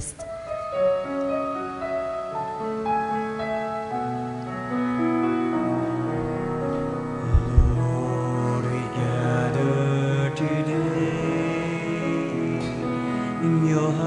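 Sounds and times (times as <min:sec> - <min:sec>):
keyboard playing slow hymn: 0:00.0 - 0:14.0
low bass notes: 0:06.7 - 0:08.1.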